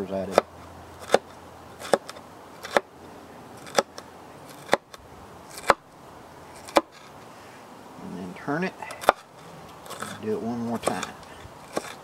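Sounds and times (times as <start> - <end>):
knife slicing on wooden board: 0.3 - 2.9, 3.6 - 5.8, 6.5 - 7.1, 10.8 - 12.0.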